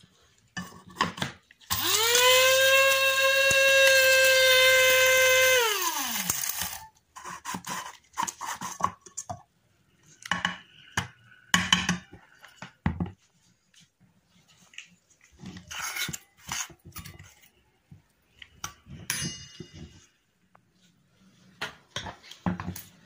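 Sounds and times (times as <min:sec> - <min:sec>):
electric grinder whining: 0:01.7 - 0:06.8.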